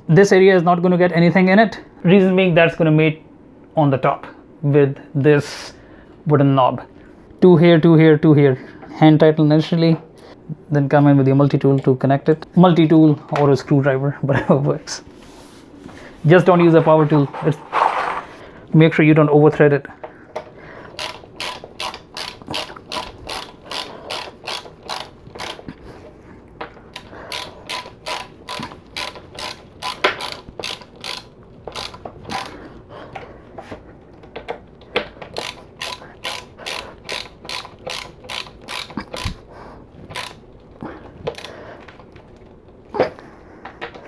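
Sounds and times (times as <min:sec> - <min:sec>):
ratcheting screwdriver clicking: 0:21.0 - 0:25.7, 0:26.9 - 0:32.6, 0:35.0 - 0:39.4, 0:40.1 - 0:40.4.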